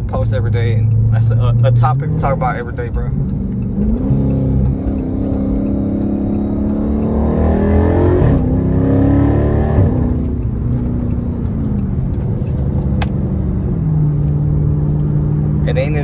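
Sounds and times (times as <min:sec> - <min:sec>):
car engine accelerating: 0:00.0 - 0:16.0
sharp click: 0:03.4 - 0:13.3.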